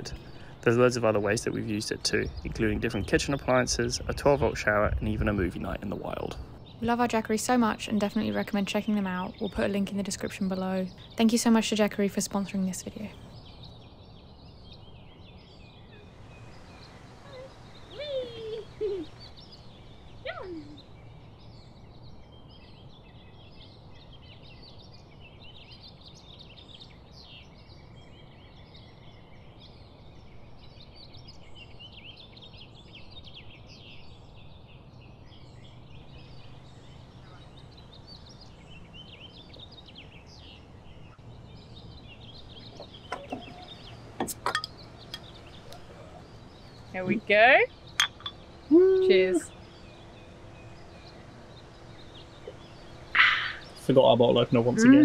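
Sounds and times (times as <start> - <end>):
small birds chirping: 0.0 - 55.0
bird calls gliding downward: 5.4 - 24.8, 35.3 - 55.0.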